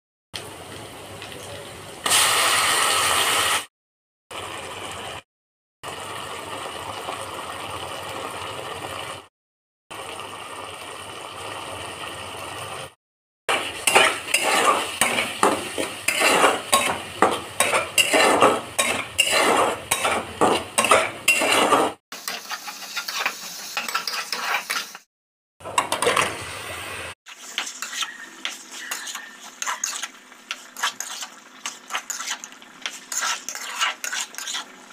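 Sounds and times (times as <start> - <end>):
onions sizzling in oil: 0.4 - 3.7, 13.5 - 25.1, 25.9 - 34.9
spatula scraping metal pan: 13.5 - 25.1, 27.3 - 34.9.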